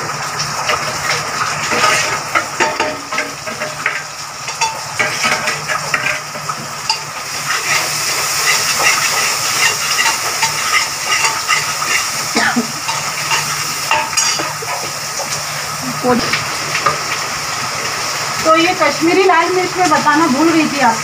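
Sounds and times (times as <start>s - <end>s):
onions sizzling in oil: 0.0s - 21.0s
metal ladle scraping a plate: 1.7s - 12.2s.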